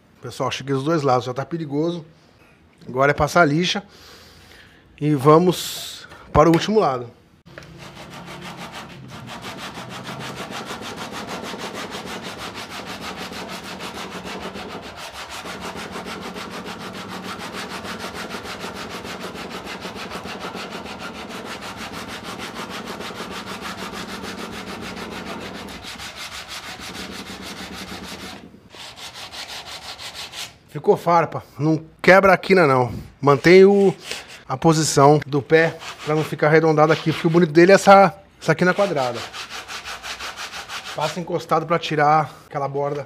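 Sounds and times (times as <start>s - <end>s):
sandpaper sanding wood: 7.7s - 30.6s, 35.6s - 37.6s, 38.6s - 41.3s.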